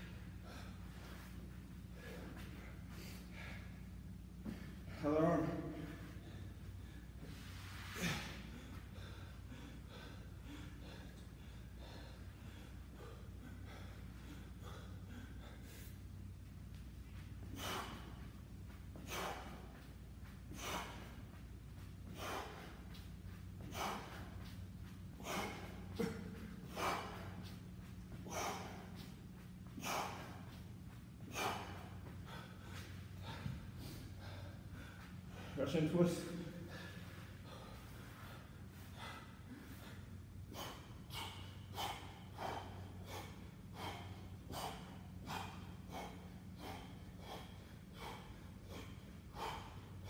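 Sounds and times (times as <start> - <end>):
man exhaling forcefully: 17.4 - 18.3, 18.9 - 19.9, 20.5 - 21.2, 22.0 - 23.0, 23.6 - 24.6, 25.2 - 27.5, 28.1 - 29.1, 29.7 - 30.6.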